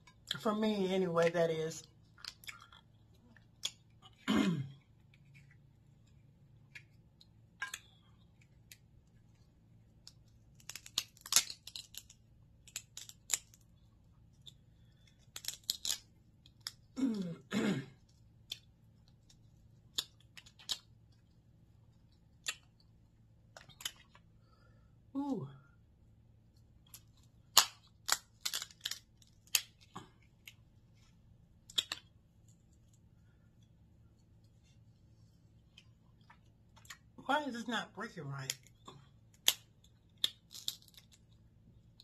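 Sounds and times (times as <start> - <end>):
crab shells cracking: 2.0 - 4.2, 9.9 - 17.0, 18.2 - 21.3, 22.1 - 24.3, 26.8 - 30.6, 31.6 - 32.2, 38.5 - 42.0.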